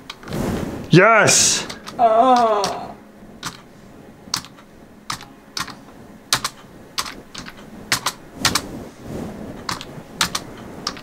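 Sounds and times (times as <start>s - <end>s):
keyboard keys clicking: 1.6s - 2.8s, 3.4s - 3.7s, 4.3s - 8.7s, 9.6s - 11.0s.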